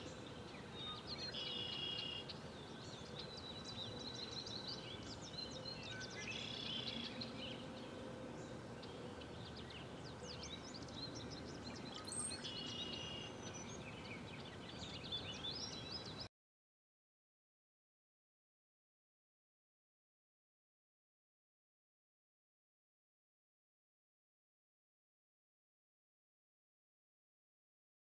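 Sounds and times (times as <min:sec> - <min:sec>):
small birds chirping: 0:00.0 - 0:16.3
steady background hiss: 0:00.0 - 0:16.3.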